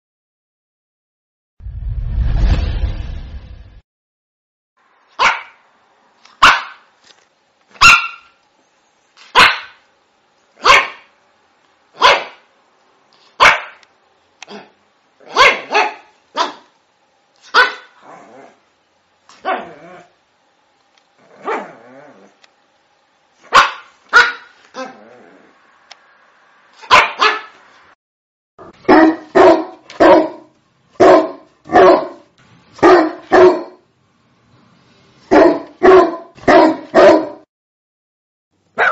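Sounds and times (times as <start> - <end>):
dog barking: 5.2 - 5.6, 6.4 - 6.9, 7.8 - 8.4, 9.3 - 9.8, 10.6 - 11.1, 12.0 - 12.5, 13.4 - 13.8, 14.5 - 16.7, 17.4 - 18.0, 21.4 - 21.8, 23.4 - 24.9, 26.8 - 27.6, 28.6 - 33.8, 35.3 - 37.4.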